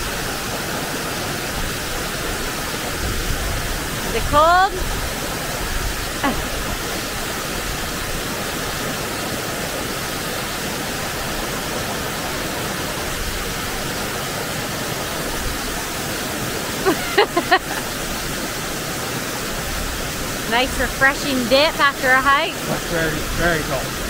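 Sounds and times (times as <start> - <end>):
waterfall rushing: 0.0 - 24.0
person's voice: 4.1 - 4.8, 20.5 - 24.0.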